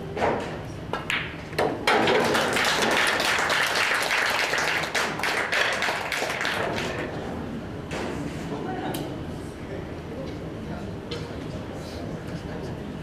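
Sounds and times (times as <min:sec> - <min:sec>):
audience clapping: 0:01.9 - 0:07.1.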